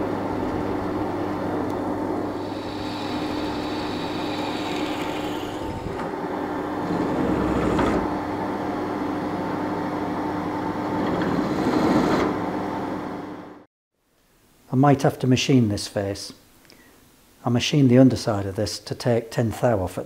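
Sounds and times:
machine spindle humming: 0.0 - 9.7.

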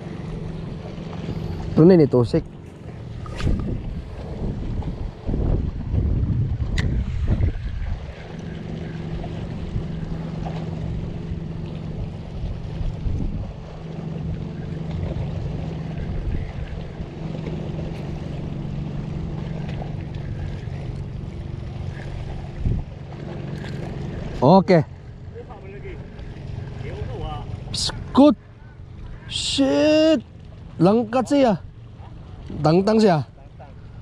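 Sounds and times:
fishing reel gear hum: 0.0 - 34.0
wind noise on microphone: 3.2 - 8.4, 12.1 - 13.8, 15.9 - 17.1, 22.0 - 23.0.

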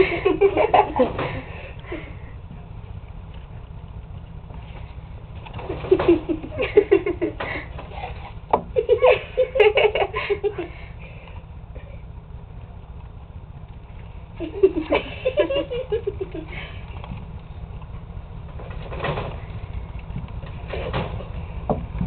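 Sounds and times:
person giggling: 0.0 - 2.2, 5.7 - 10.8, 14.4 - 16.8.

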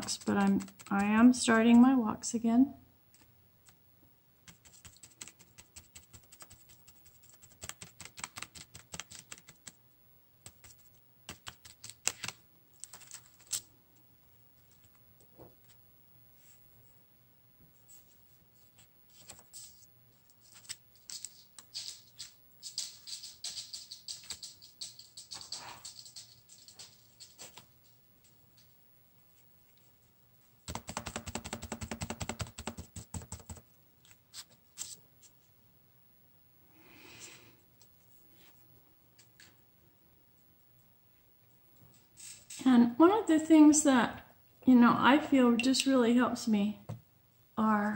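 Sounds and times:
paper rubbing hiss: 0.0 - 1.3, 4.4 - 9.8
fingers tapping on paper: 0.0 - 1.8, 4.4 - 9.8, 10.4 - 12.4, 30.7 - 33.6.

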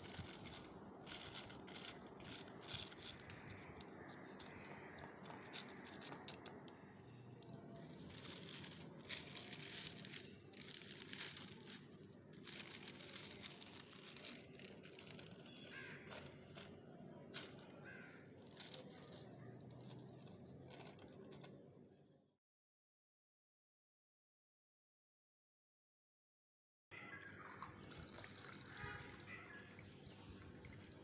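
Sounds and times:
baking paper crinkling: 0.0 - 21.6.

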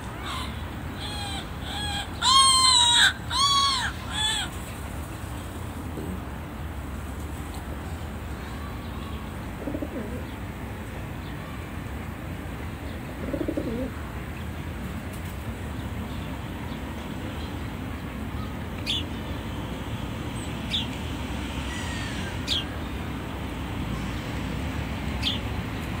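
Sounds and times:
low background noise: 0.0 - 26.0
dove cooing: 9.5 - 10.4, 13.1 - 14.0.

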